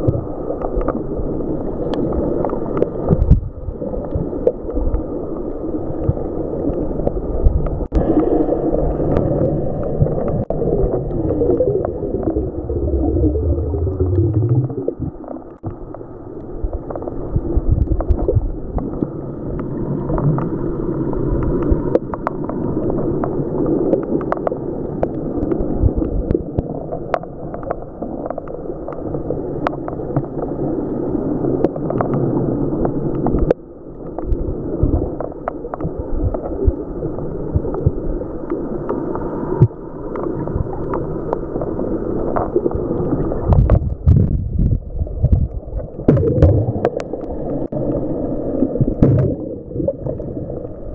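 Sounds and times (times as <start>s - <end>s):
underwater waves churning: 0.0s - 28.4s, 35.9s - 50.9s
underwater crackles and clicks: 0.0s - 50.9s
low droning tone: 10.7s - 15.9s.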